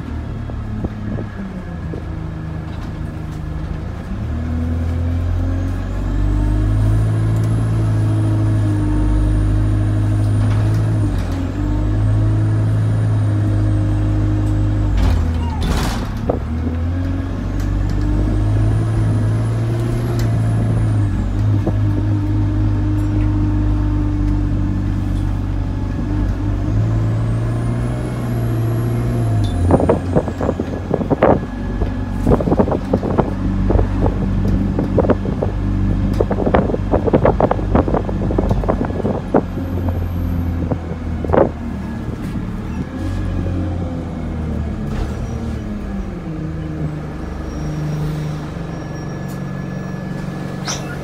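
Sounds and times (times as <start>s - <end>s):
bus engine hum: 0.0s - 51.0s
bus fittings rattling: 50.6s - 51.0s.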